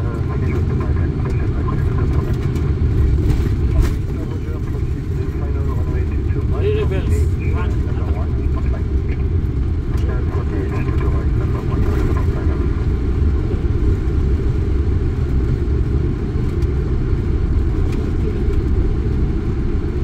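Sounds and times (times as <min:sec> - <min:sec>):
low rumble of jet landing: 0:00.0 - 0:20.0.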